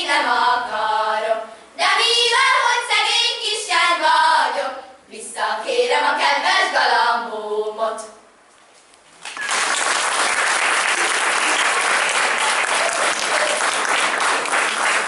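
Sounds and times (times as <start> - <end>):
audience applauding: 9.2 - 15.0.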